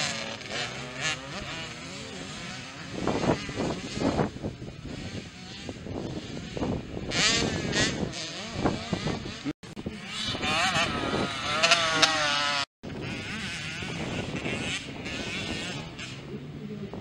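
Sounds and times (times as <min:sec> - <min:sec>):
motocross bike engines revving: 0:00.0 - 0:17.0.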